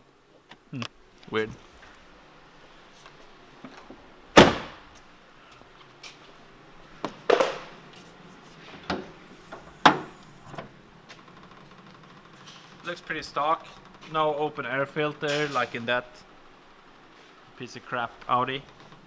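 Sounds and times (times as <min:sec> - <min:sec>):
car bonnet clunks and thuds: 0:08.8 - 0:10.8.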